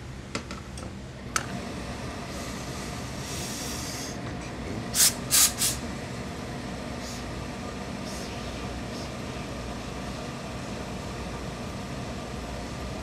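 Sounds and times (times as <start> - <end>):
low machine hum: 0.0 - 13.0
steam iron hissing: 2.3 - 4.2, 4.9 - 5.8.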